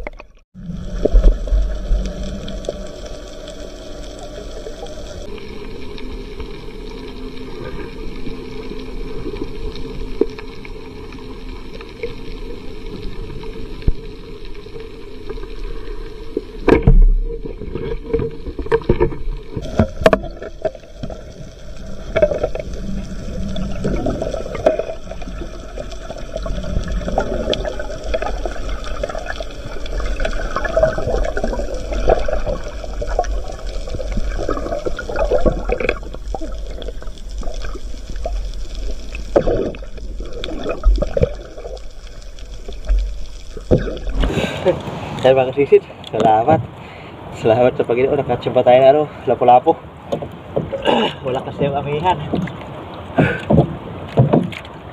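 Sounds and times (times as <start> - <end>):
underwater hum: 0.0 - 47.4.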